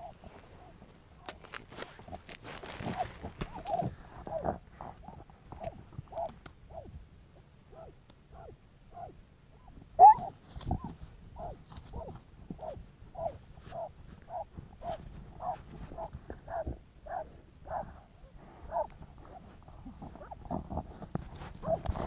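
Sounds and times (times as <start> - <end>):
dog barking: 2.9 - 4.5, 7.7 - 9.2, 10.0 - 10.3, 11.4 - 18.0, 18.7 - 19.4, 21.6 - 21.8.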